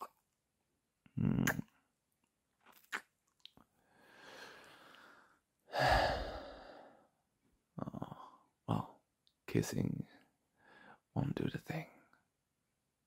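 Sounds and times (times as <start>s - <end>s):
man kissing and mouth sounds: 1.1s - 3.7s
man breathing: 3.8s - 7.2s, 10.6s - 11.1s.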